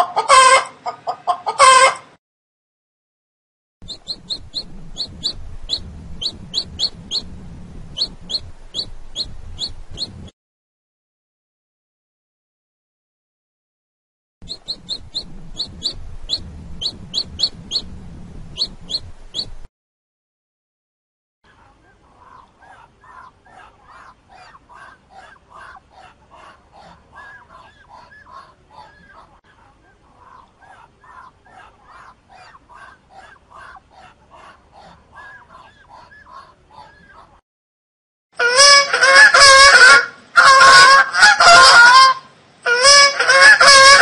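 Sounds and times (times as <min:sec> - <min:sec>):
baby chick peeping: 0:00.0 - 0:02.0, 0:03.8 - 0:10.3, 0:14.4 - 0:19.7, 0:21.5 - 0:37.4, 0:38.4 - 0:44.0
low background hum: 0:03.8 - 0:10.3, 0:14.4 - 0:19.7
waterfowl calling: 0:22.2 - 0:29.4, 0:30.2 - 0:37.3, 0:38.4 - 0:44.0.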